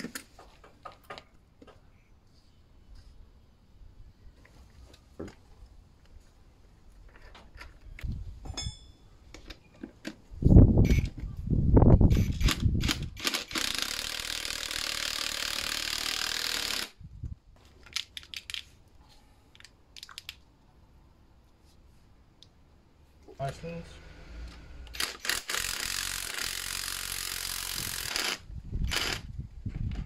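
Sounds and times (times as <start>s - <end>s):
metal clinks and knocks: 8.4s - 9.8s.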